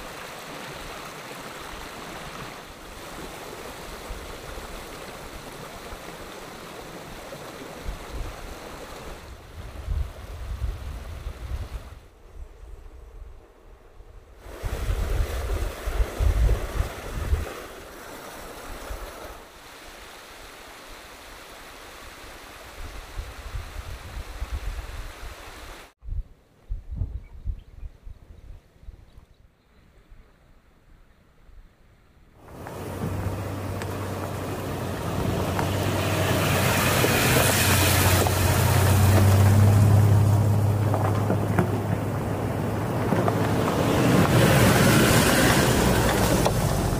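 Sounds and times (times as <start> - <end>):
stream rushing over rock: 0.0 - 12.0, 14.4 - 26.0, 32.4 - 46.9
wind buffeting microphone: 9.2 - 17.8, 26.0 - 29.2, 32.4 - 46.9
rushing noise: 32.4 - 46.9
car engine drone: 32.5 - 46.9.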